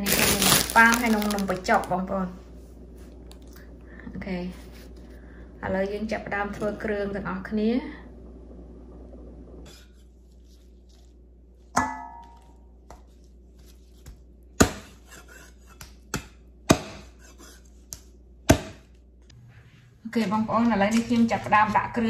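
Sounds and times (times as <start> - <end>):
meat cleaver chopping on wood: 14.6 - 17.2, 18.5 - 18.9.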